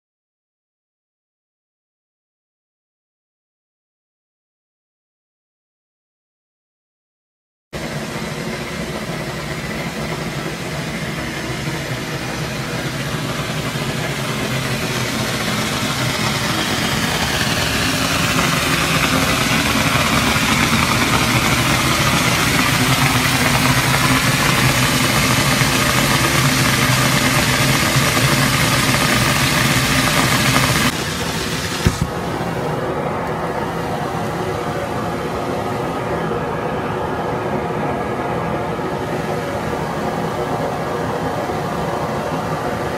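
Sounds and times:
geyser rushing hiss: 0:08.0 - 0:32.8.

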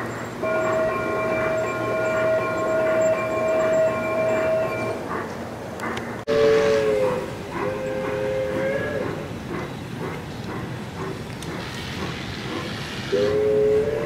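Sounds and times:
lower two-note horn: 0:00.4 - 0:05.0
model train horn blast: 0:00.4 - 0:05.0, 0:06.3 - 0:09.0, 0:13.1 - 0:14.0.

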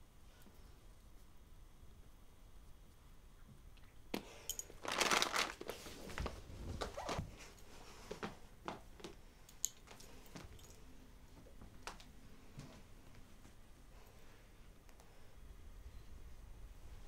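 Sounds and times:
clothing rustling: 0:04.6 - 0:09.2.

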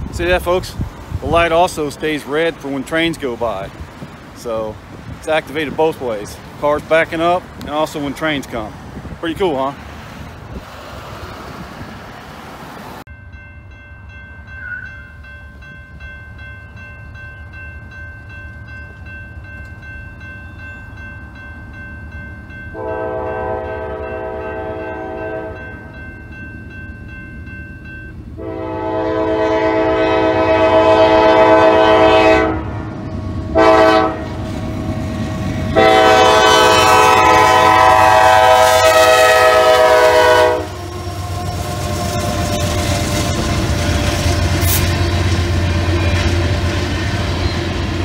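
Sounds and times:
railroad crossing bell ringing: 0:00.0 - 0:09.9, 0:13.1 - 0:34.2, 0:34.9 - 0:48.0
locomotive air horn blasts: 0:22.7 - 0:25.6, 0:28.4 - 0:32.9, 0:33.5 - 0:34.4, 0:35.7 - 0:45.2.

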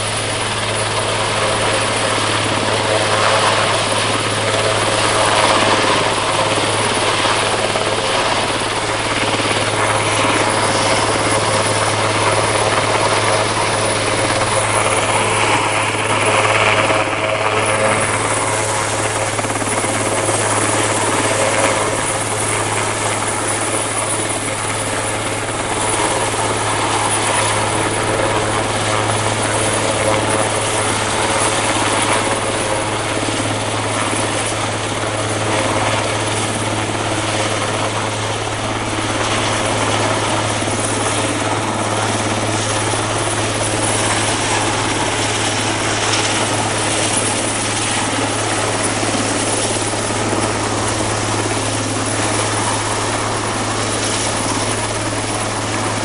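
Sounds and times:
helicopter hovering overhead: 0:00.0 - 0:56.0.

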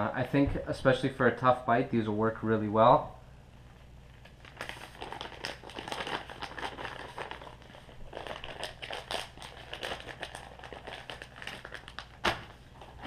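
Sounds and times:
plastic bag crinkling: 0:04.1 - 0:13.0.

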